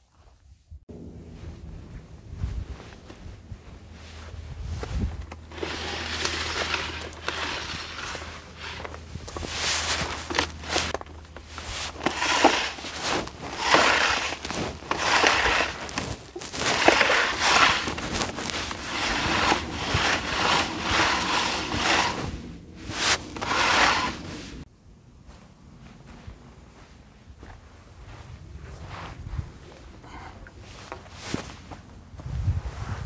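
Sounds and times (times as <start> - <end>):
hose swishing over dry grass: 1.5 - 24.7.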